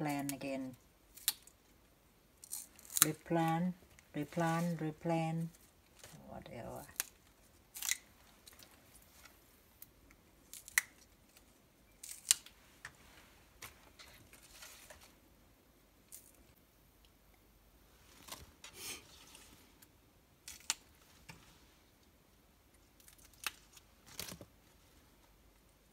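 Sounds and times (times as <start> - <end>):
vegetable stems snapping: 2.4 - 3.1, 6.9 - 8.0.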